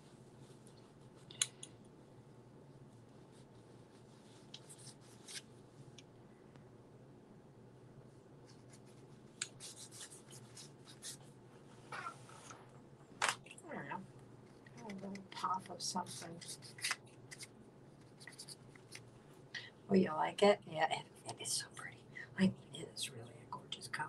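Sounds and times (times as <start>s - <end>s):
paintbrush scratching on paper: 0.0s - 1.4s, 2.9s - 5.5s, 8.4s - 11.3s, 14.9s - 19.1s
low steady hum: 0.0s - 24.0s.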